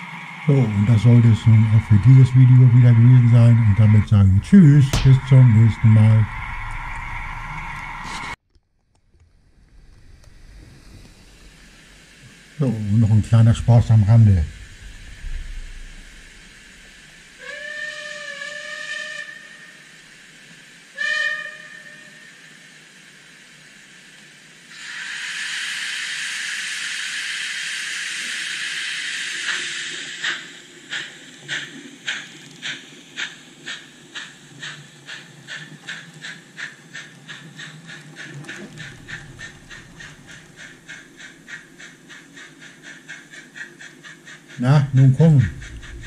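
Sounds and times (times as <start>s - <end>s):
steam hiss: 0.0s - 8.4s, 9.7s - 46.0s
steam locomotive chuffs: 0.0s - 8.4s, 9.9s - 46.0s
model train whistle toot: 17.4s - 20.0s, 20.9s - 22.5s.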